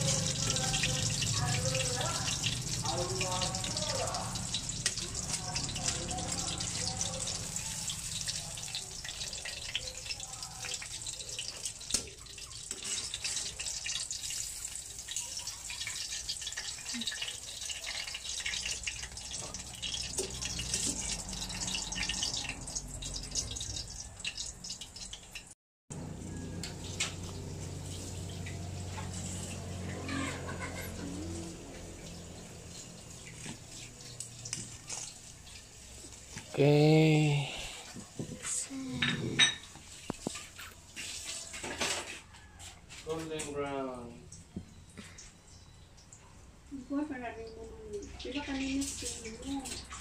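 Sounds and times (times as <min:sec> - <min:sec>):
metal tongs turning food: 0:00.0 - 0:25.5, 0:26.3 - 0:36.6
food deep-frying in hot oil: 0:00.0 - 0:50.0.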